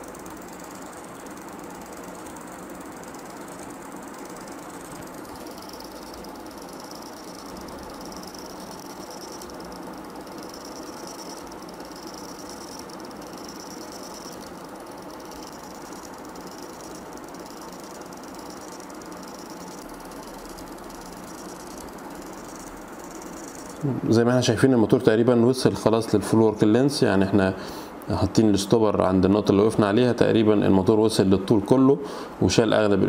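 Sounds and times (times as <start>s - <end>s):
small motor whirring: 0.0s - 23.9s
high motor whine: 0.0s - 24.1s.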